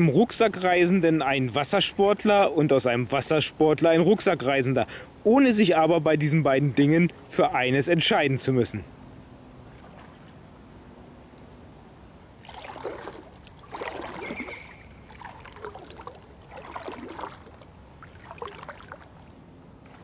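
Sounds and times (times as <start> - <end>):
paddle splashing in water: 9.6 - 10.4, 12.4 - 20.0.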